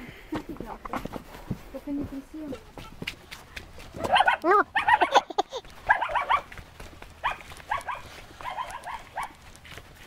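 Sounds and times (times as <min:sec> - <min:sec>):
dog barking high yaps: 0:04.0 - 0:06.5, 0:07.2 - 0:09.4.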